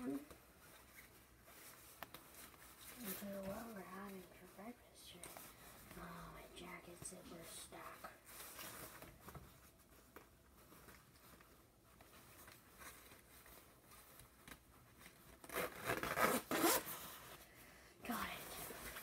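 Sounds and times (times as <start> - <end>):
rubbing at zipper slider: 15.4 - 17.1
loud zipping pulls: 15.5 - 16.8.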